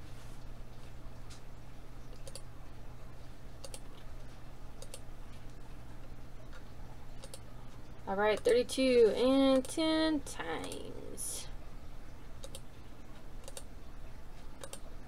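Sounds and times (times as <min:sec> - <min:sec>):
computer mouse clicking: 0:02.1 - 0:02.5, 0:03.6 - 0:04.1, 0:04.8 - 0:05.0, 0:07.2 - 0:07.5, 0:08.4 - 0:08.6, 0:12.4 - 0:12.6, 0:13.4 - 0:13.7, 0:14.6 - 0:14.8.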